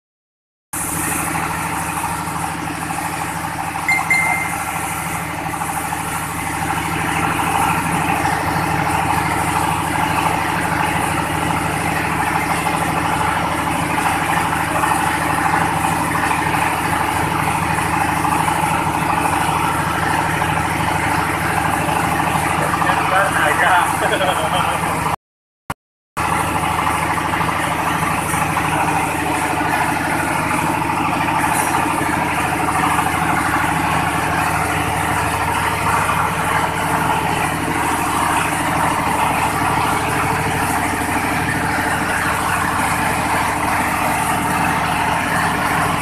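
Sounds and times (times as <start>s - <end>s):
brief high squeak: 3.9s - 4.8s.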